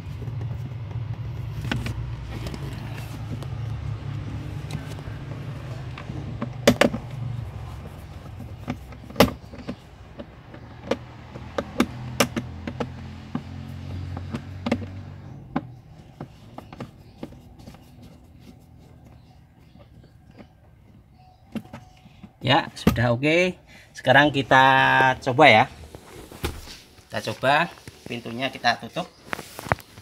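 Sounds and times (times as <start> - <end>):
plastic trim panel clicks and knocks: 0.4 - 17.6.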